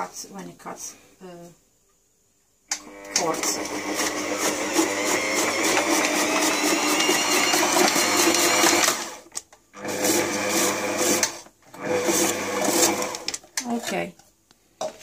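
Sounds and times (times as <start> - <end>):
food processor slicing carrot: 2.7 - 9.2, 9.8 - 13.4.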